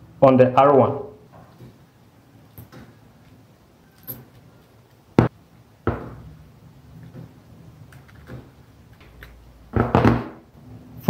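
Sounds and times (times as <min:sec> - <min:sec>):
plastic parts knocking on desk: 0:09.7 - 0:10.4.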